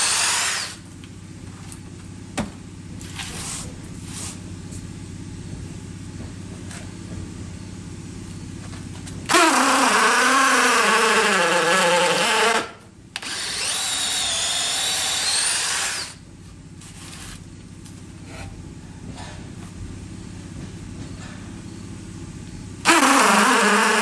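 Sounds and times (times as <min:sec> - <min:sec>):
hammer drill boring into wood: 0:00.0 - 0:00.8, 0:09.3 - 0:16.2, 0:22.8 - 0:24.0.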